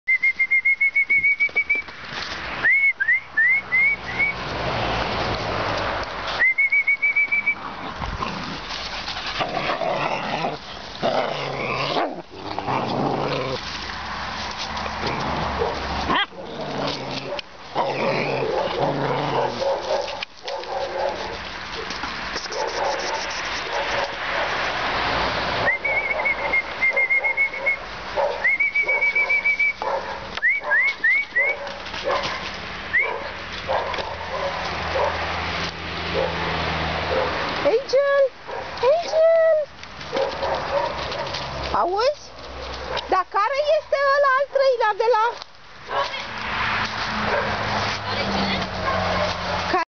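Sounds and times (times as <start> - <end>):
high trilling whistle: 6.4 - 7.6
dogs barking: 15.4 - 16.6, 17.2 - 21.4, 22.4 - 24.7, 27.2 - 37.5, 38.4 - 39.2, 40.1 - 41.5, 45.9 - 46.3, 47.2 - 47.7, 48.7 - 49.6.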